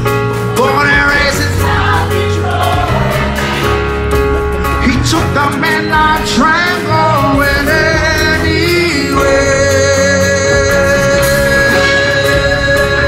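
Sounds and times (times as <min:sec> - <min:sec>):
bass guitar: 0:00.0 - 0:13.0
drums: 0:00.0 - 0:13.0
person singing: 0:04.8 - 0:13.0.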